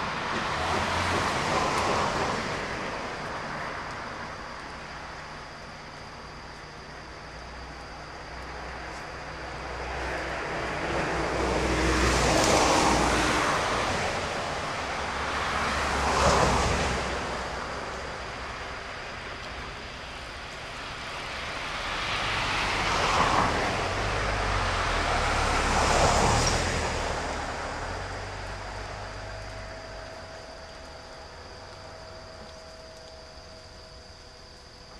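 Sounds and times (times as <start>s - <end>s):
vehicles passing: 8.6s - 34.3s
low hum: 26.9s - 34.9s.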